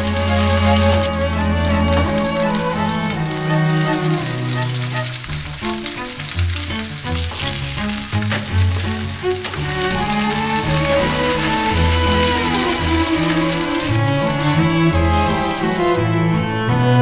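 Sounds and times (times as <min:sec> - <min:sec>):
steaks sizzling in a frying pan: 0:00.0 - 0:16.0
instrumental background music: 0:00.0 - 0:17.0.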